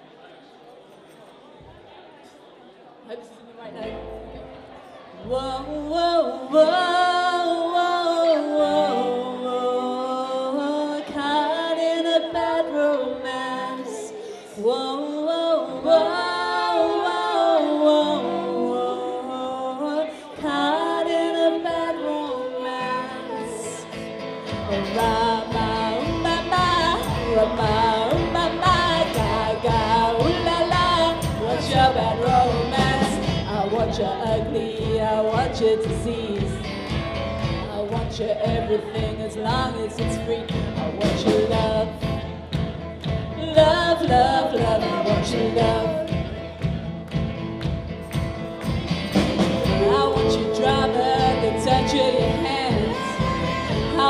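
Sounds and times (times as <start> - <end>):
person singing: 5.1 - 42.5, 43.2 - 46.5, 49.2 - 54.0
swing band playing: 24.2 - 54.0.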